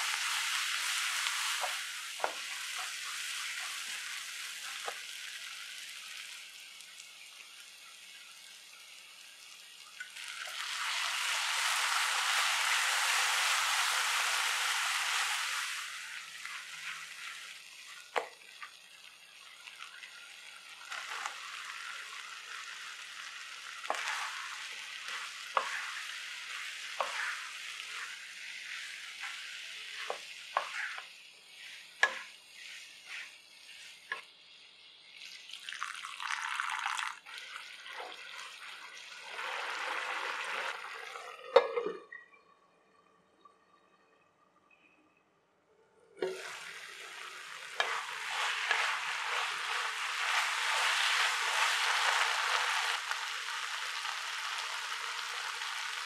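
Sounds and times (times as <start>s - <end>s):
wooden spatula scraping a pan: 0.0s - 5.1s, 16.4s - 18.3s, 20.9s - 21.8s, 23.8s - 34.2s, 46.2s - 53.3s
masala sizzling in a pan: 0.0s - 41.2s, 46.2s - 56.0s.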